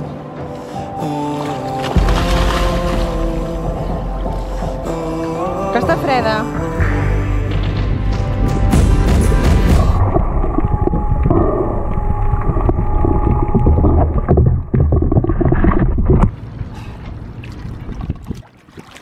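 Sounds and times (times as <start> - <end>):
underwater rumble of moving water: 9.7 - 18.5.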